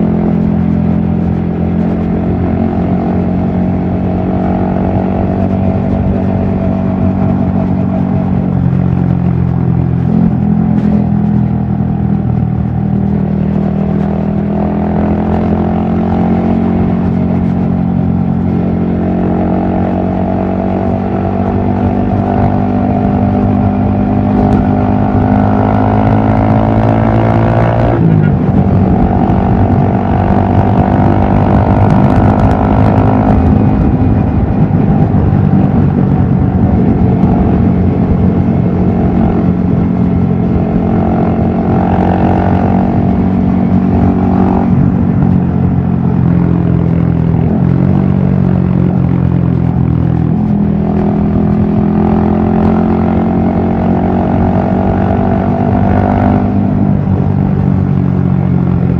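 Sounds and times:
motorcycle engine running: 0:00.0 - 0:58.9
wind noise on microphone: 0:00.0 - 0:58.9.

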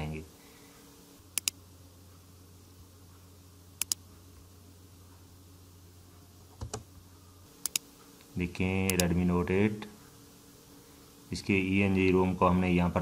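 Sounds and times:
low steady hum: 0:00.0 - 0:13.0
mouse double-clicks: 0:01.4 - 0:01.6, 0:03.8 - 0:04.0, 0:07.6 - 0:07.8.

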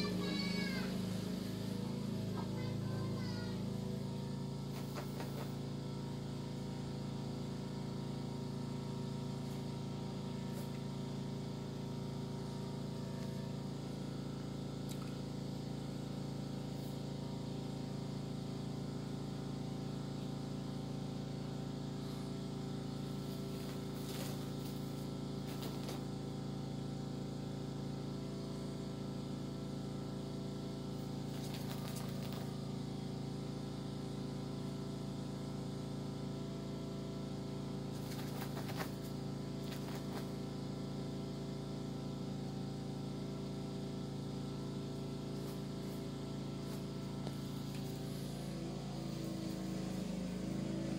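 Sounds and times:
low mechanical hum: 0:00.0 - 0:50.9
rustles: 0:04.7 - 0:05.6, 0:23.1 - 0:26.1, 0:31.2 - 0:32.6, 0:37.9 - 0:40.5, 0:45.3 - 0:50.3.

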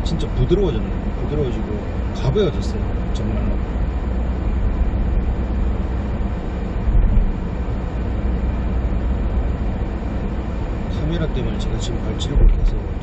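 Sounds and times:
car cabin road rumble: 0:00.0 - 0:13.0
low thump: 0:06.9 - 0:07.4.

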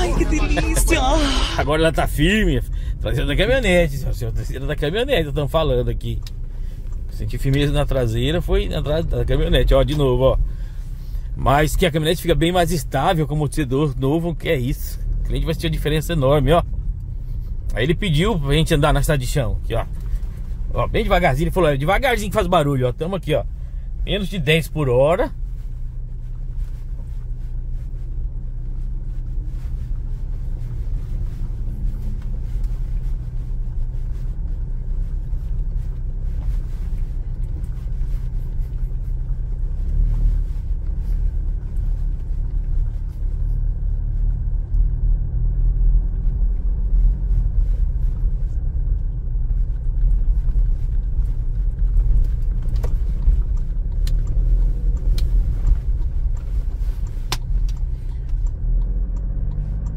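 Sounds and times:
low tyre rumble in car cabin: 0:00.0 - 0:59.9
faint clicks and ticks: 0:48.5 - 0:59.9.

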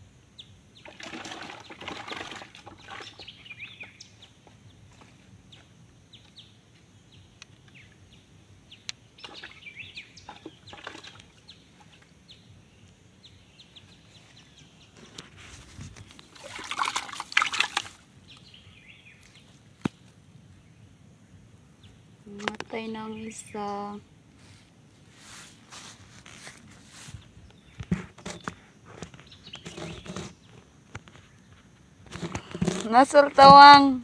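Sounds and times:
small birds chirping: 0:00.2 - 0:17.2, 0:17.9 - 0:34.0
water splashing: 0:00.8 - 0:03.3, 0:10.2 - 0:11.9, 0:16.2 - 0:18.1.

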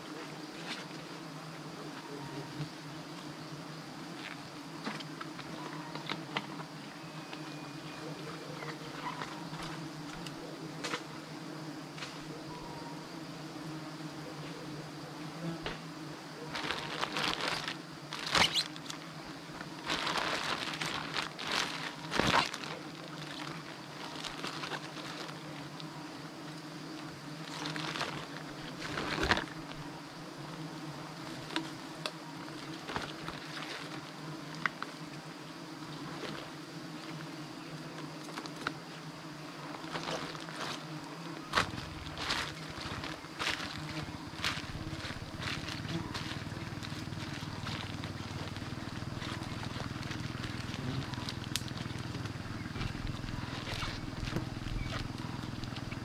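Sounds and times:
bees buzzing in low drone: 0:00.0 - 0:56.0
rustling: 0:16.4 - 0:25.8, 0:27.4 - 0:29.9, 0:39.6 - 0:56.0.

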